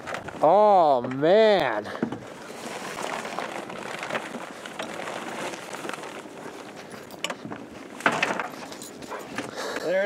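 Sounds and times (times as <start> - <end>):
fabric cover rustling: 2.3 - 9.4.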